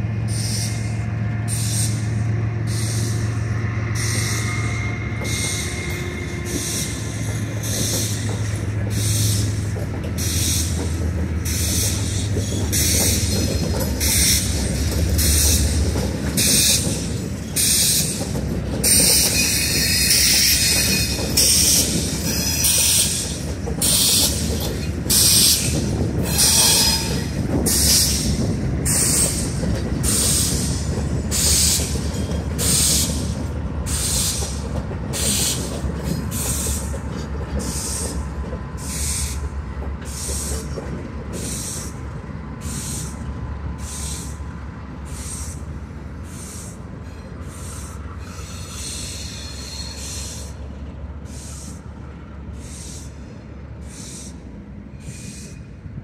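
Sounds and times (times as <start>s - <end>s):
diesel locomotive rumble: 0.0s - 56.0s
wheel squeal: 2.7s - 9.6s, 18.8s - 33.3s.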